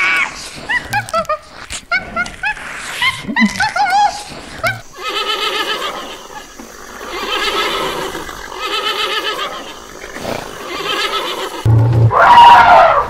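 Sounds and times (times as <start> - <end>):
horse whinnying: 7.1 - 13.0.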